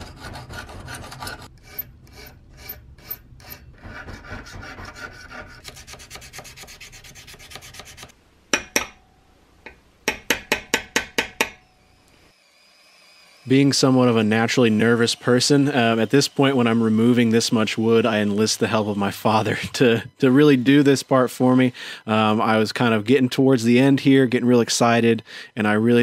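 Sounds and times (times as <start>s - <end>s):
file rasping on steel: 0.0s - 8.1s
hammer tapping punch: 10.1s - 11.6s.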